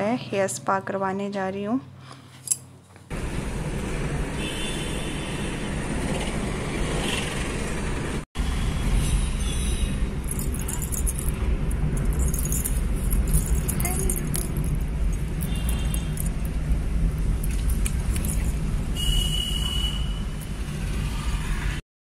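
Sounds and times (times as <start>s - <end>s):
car engine and road rumble: 2.6s - 21.8s.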